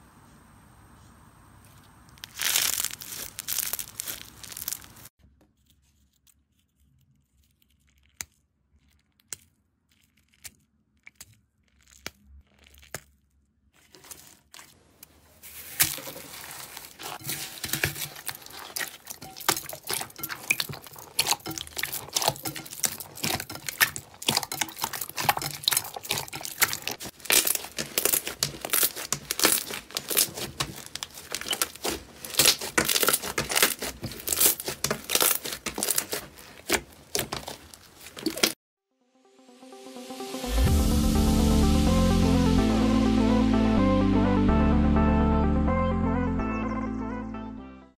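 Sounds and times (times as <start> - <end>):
foil crinkling: 2.1 - 5.1, 7.2 - 38.6
slime crackling and popping: 2.1 - 5.1, 7.3 - 14.2, 15.6 - 38.6.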